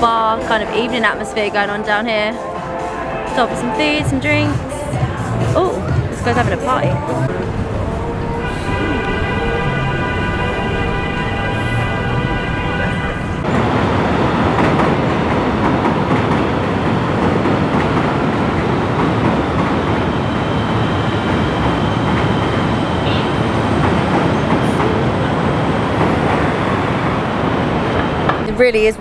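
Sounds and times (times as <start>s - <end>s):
elevated train wheels on rail: 0.0s - 29.0s.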